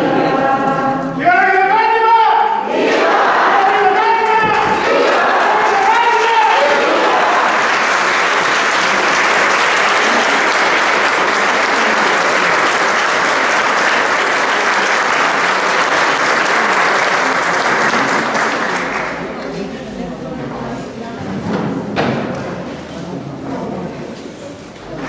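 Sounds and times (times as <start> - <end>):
congregation applauding: 2.8 - 19.4.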